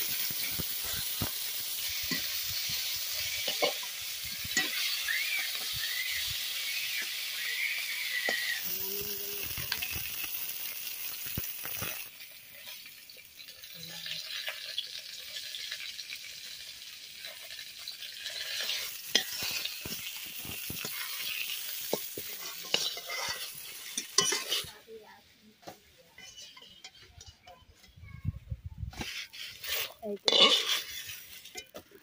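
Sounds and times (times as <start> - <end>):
vegetables sizzling in pan: 0.0 - 32.0
metal spatula scraping pan: 0.2 - 7.0, 18.2 - 24.9, 25.6 - 28.0, 28.9 - 32.0.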